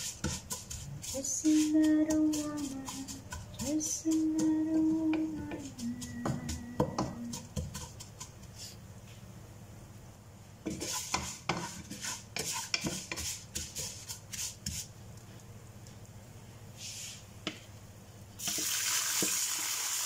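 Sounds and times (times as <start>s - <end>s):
spatula scraping a pan: 0.0s - 8.8s, 10.6s - 14.9s.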